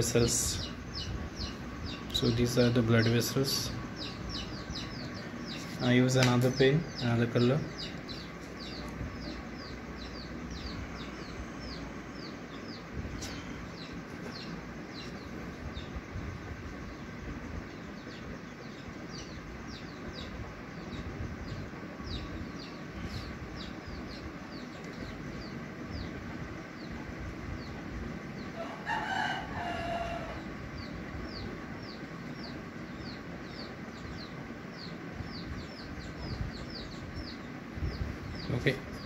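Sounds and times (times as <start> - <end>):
small birds chirping: 0.0 - 39.0
rooster crowing: 28.6 - 30.6.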